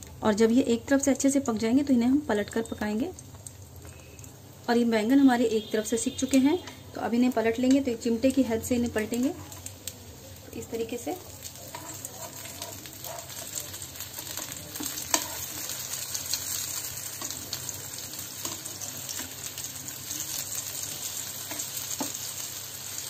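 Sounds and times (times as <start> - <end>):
vegetable slices sizzling in oil: 0.3 - 23.0
spatula scraping and clicking on pan: 11.4 - 13.6, 14.2 - 15.8, 21.5 - 22.2.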